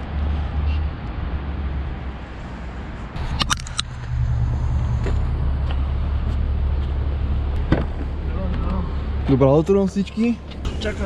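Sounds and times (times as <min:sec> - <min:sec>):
low steady rumble: 0:03.2 - 0:09.8.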